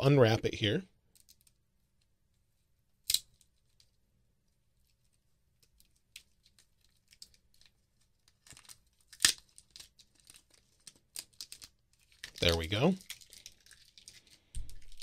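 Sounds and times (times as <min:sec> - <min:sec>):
plastic wrapping crinkling: 0:06.2 - 0:15.0
wrapping ripping: 0:06.7 - 0:15.0.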